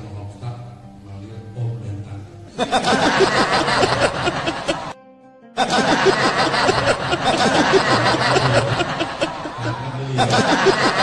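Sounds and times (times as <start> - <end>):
music: 0.0 - 11.0
group of people laughing: 2.6 - 5.0, 5.6 - 11.0.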